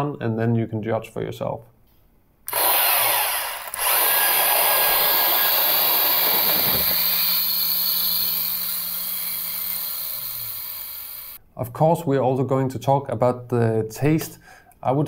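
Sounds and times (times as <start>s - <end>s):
coffee grinder grinding: 2.5s - 11.4s.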